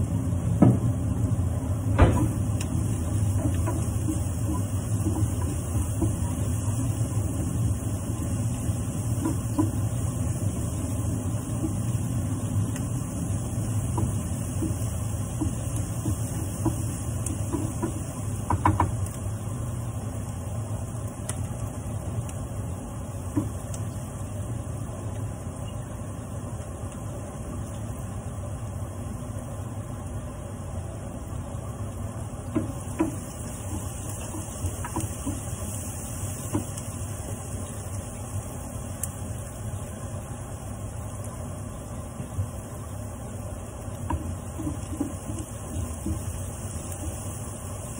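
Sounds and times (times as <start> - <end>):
steady low hum: 0.0 - 47.9
vegetables sizzling in a frying pan: 0.0 - 47.9
spatula knocking against pan: 15.4 - 19.0.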